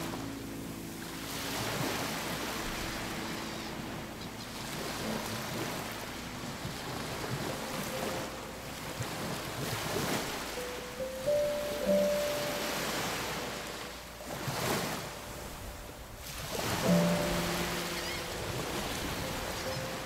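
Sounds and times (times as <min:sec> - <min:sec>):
waves washing on rocky shore: 0:00.0 - 0:20.0
wind buffeting microphone: 0:14.4 - 0:20.0.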